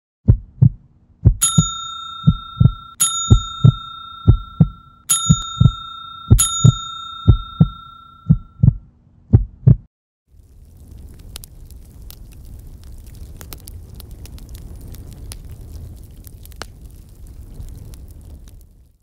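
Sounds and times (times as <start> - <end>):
low double thumps: 0.3 - 9.9
bright bell dings: 1.4 - 8.6.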